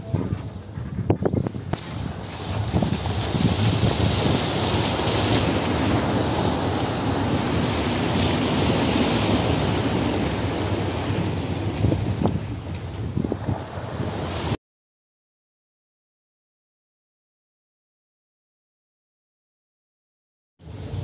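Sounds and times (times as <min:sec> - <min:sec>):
wind on microphone: 0:00.0 - 0:14.6
water splashing under wheels: 0:00.3 - 0:14.6.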